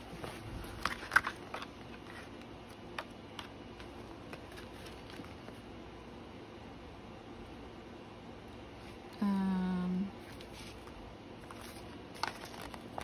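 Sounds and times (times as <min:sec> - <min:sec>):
paper pages turning: 0:00.1 - 0:05.6, 0:10.3 - 0:13.0.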